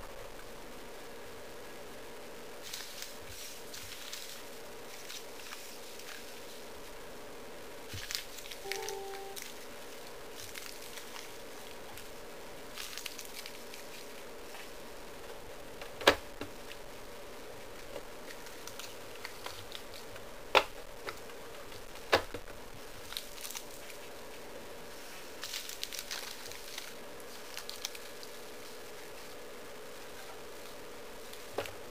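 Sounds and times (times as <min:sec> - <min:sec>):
faint steady hum: 0:00.0 - 0:31.9.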